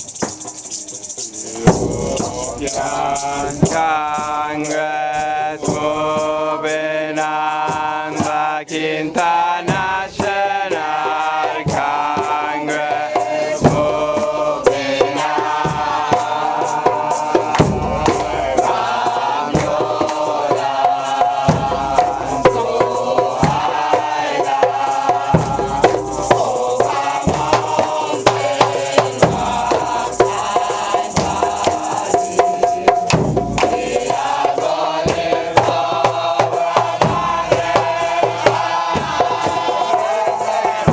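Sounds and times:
drums beating: 0.0s - 40.9s
congregation chanting a hymn: 1.5s - 40.9s
deep drum strokes: 1.6s - 4.6s.

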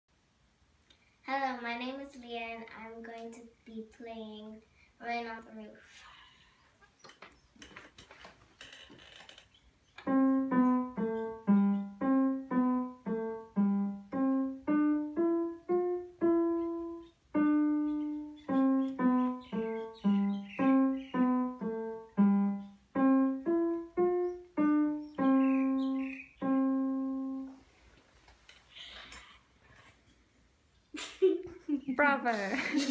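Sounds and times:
digital piano melody: 10.0s - 27.6s.

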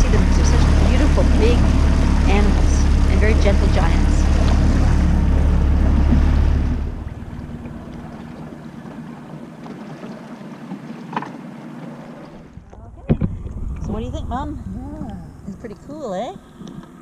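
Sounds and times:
open water wash: 0.0s - 17.0s
wind buffeting microphone: 12.4s - 16.4s.

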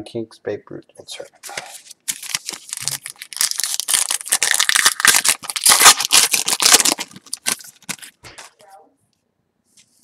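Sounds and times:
foil wrapper tearing and crinkling: 1.5s - 8.6s.

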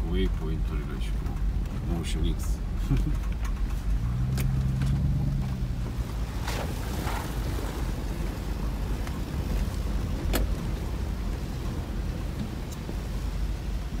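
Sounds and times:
car engine and tyre rumble: 0.0s - 14.0s
gravel ticks and knocks: 0.1s - 7.8s.

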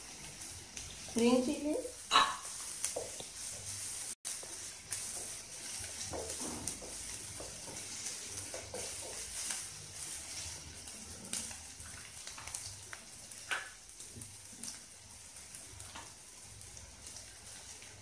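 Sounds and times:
vegetables sizzling in hot oil: 0.0s - 18.0s
wooden spatula scraping: 2.4s - 11.7s.

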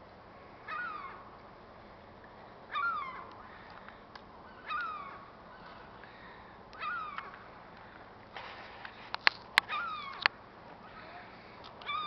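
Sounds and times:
gull calling: 0.6s - 1.3s, 2.7s - 7.6s, 9.6s - 12.0s.

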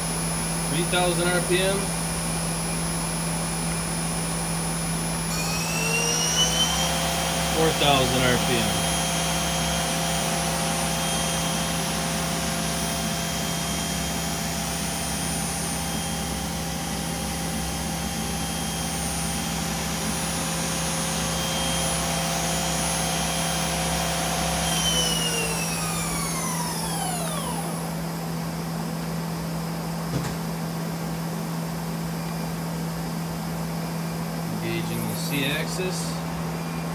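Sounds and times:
machine hum: 0.0s - 36.9s
lathe spindle high whine: 0.2s - 28.2s.

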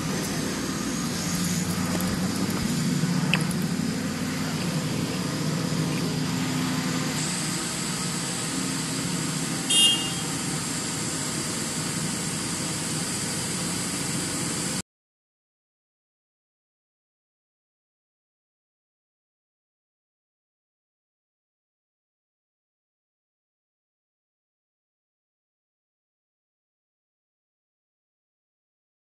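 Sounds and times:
diesel engine running: 0.0s - 14.8s.

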